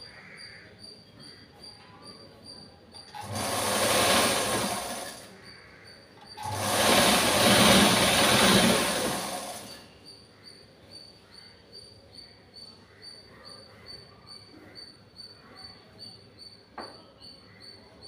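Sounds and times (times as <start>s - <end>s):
sewing machine stitching: 3.0s - 5.3s, 6.3s - 9.9s.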